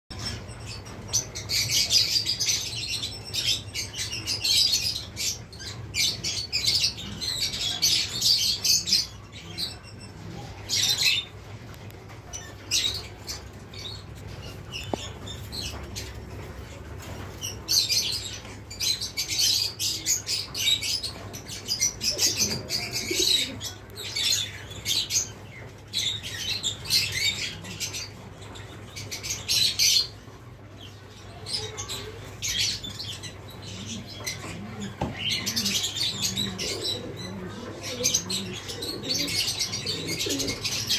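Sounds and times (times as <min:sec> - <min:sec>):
small birds chirping: 0:00.1 - 0:40.9.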